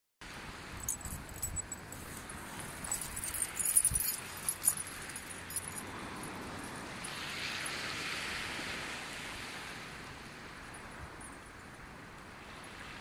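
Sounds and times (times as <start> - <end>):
dog collar tags jingling: 0.8 - 7.2
surf washing onto beach: 4.2 - 13.0.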